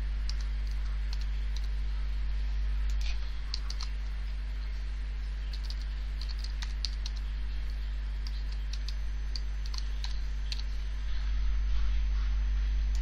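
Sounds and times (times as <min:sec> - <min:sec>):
low hum: 0:00.0 - 0:13.0
keyboard keys tapping: 0:02.9 - 0:04.0, 0:05.5 - 0:07.3, 0:08.2 - 0:10.8.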